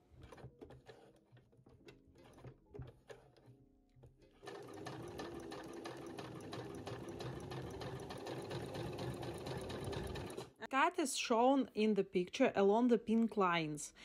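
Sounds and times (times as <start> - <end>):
sewing machine stitching: 4.3 - 10.6.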